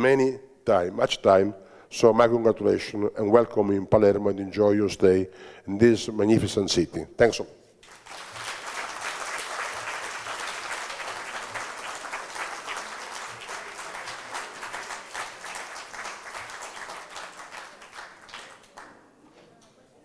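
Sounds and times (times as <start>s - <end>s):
audience applauding: 7.8s - 19.2s.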